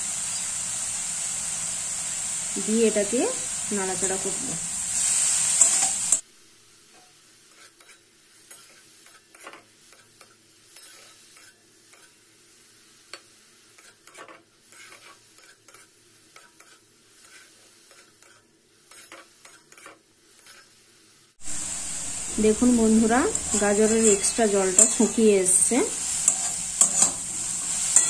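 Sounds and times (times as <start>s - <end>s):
faint sizzle: 0.0s - 28.0s
metal spatula scraping a pan: 3.9s - 6.2s, 7.5s - 10.1s, 10.7s - 12.2s, 13.8s - 20.7s, 22.5s - 28.0s.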